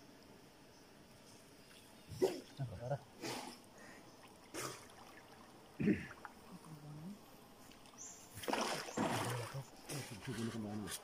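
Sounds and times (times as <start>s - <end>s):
water splashing from swimming: 4.2s - 6.8s, 7.8s - 10.2s.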